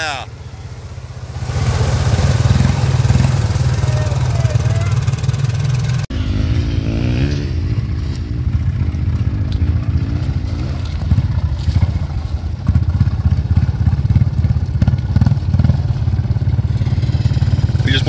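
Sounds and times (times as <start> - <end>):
atv engine revving: 0.0 - 18.0.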